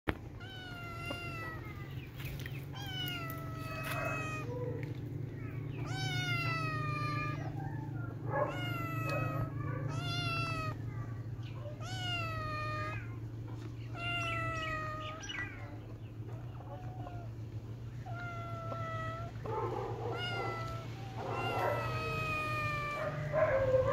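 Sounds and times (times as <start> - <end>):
steady low hum: 0.1 - 23.9
kitten meowing: 0.4 - 1.9, 2.7 - 4.8, 5.8 - 10.8, 11.6 - 13.2, 13.9 - 15.7, 18.0 - 23.3.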